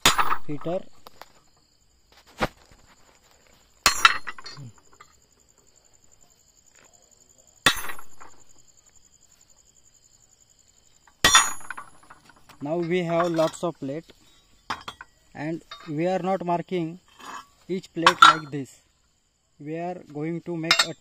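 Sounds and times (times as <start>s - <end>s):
hammer striking metal punch: 0.0s - 0.7s, 11.2s - 12.2s
cricket trilling: 0.0s - 21.0s.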